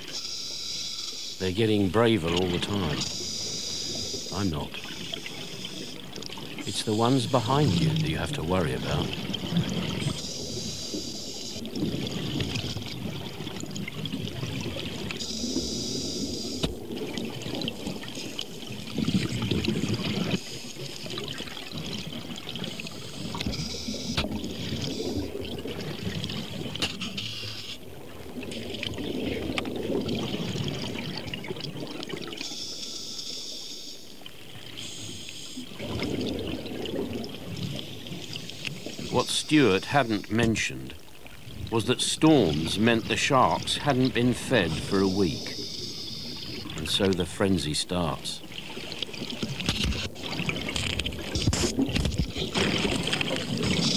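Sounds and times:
exhaled bubbles gushing underwater: 1.4s - 32.6s, 34.2s - 53.9s
regulator hiss on inhale: 3.1s - 4.3s.

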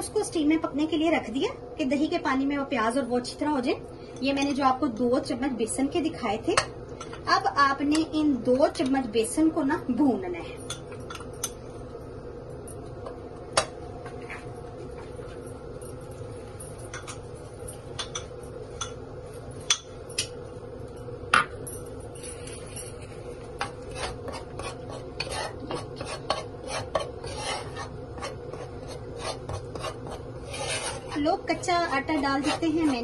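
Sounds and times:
steady low hum: 0.0s - 33.0s
metal spoon scraping a wok: 23.6s - 33.0s.

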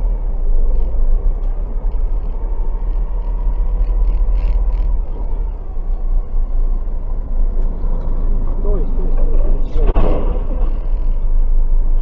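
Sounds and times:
car engine rumble: 0.0s - 12.0s
road noise: 0.0s - 12.0s.

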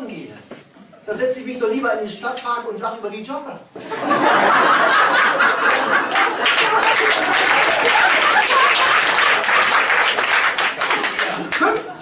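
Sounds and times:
audience laughter: 3.8s - 12.0s
audience applauding: 5.2s - 11.9s.

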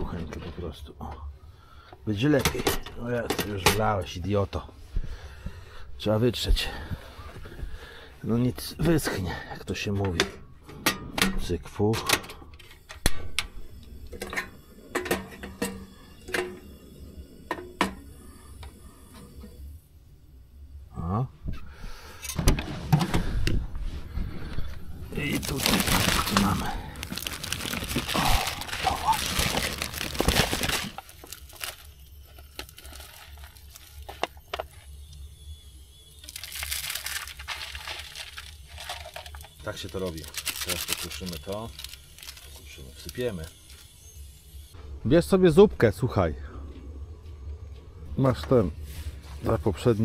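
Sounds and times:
plastic wrapping crinkling and tearing: 25.1s - 34.9s, 36.2s - 43.8s.

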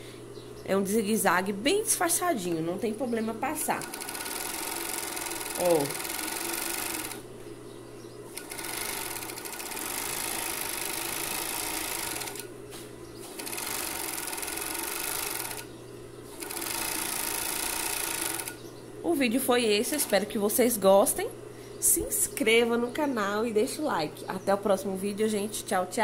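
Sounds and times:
sewing machine stitching: 3.8s - 7.2s, 8.4s - 12.5s, 13.3s - 15.6s, 16.3s - 18.6s, 19.9s - 20.2s.

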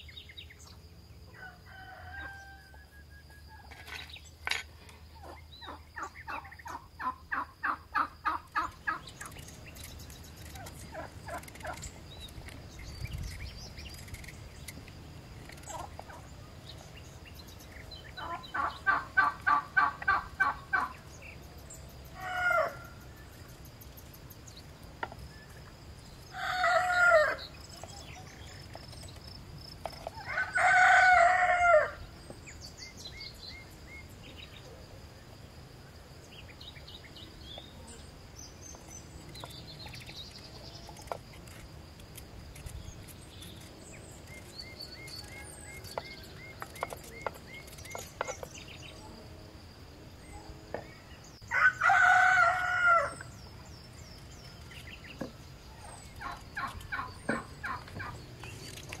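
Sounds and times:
rooster crowing: 1.3s - 3.1s, 26.3s - 27.4s, 30.2s - 32.0s, 51.5s - 53.3s.

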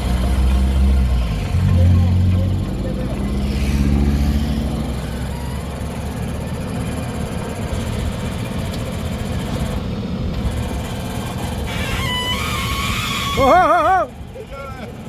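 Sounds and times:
diesel engine running under load: 0.0s - 15.0s.

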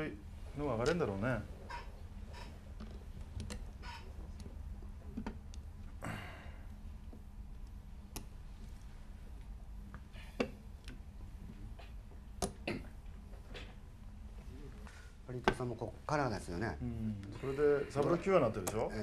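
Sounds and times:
low steady hum: 0.0s - 19.0s
mahjong tiles clicking: 2.4s - 5.6s.

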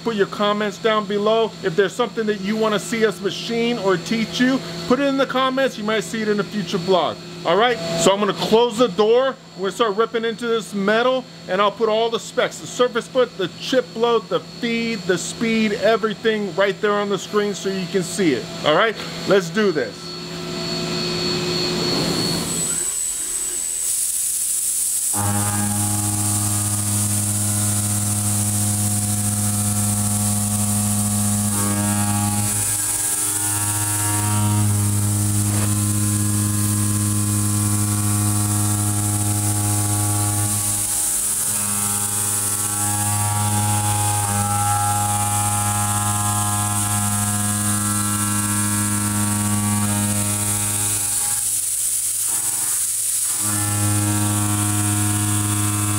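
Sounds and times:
milling machine cutting steel: 18.3s - 55.9s.

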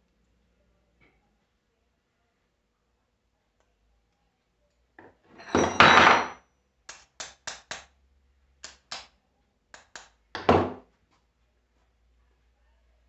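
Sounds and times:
loud knock: 10.4s - 10.8s.

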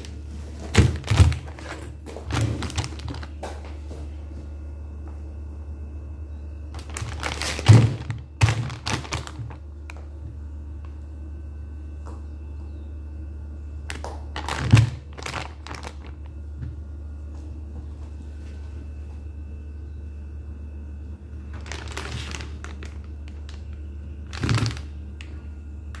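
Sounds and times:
plastic bag crinkling: 0.0s - 3.4s, 6.7s - 10.2s, 13.9s - 16.5s, 21.4s - 25.4s
steady low hum: 0.0s - 26.0s.

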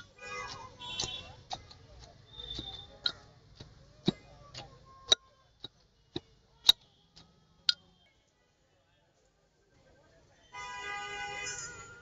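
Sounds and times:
pestle knocking in stone mortar: 0.0s - 7.8s.

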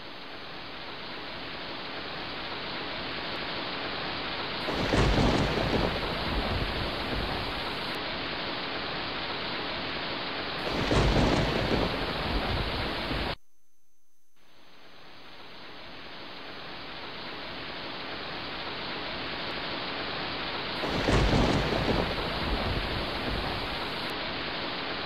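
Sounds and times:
wind on microphone: 4.6s - 7.9s, 10.6s - 13.4s, 20.8s - 24.1s.

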